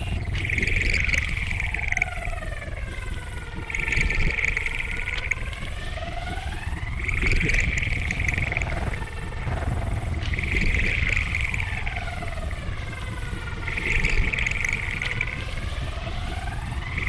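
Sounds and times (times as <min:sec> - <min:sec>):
experimental electronic noise music: 0:00.0 - 0:02.0.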